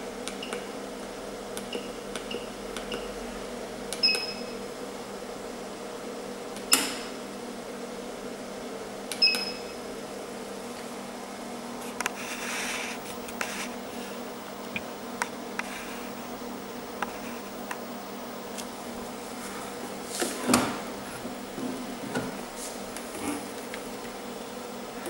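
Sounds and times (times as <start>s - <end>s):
laser machine humming: 12.2s - 25.0s.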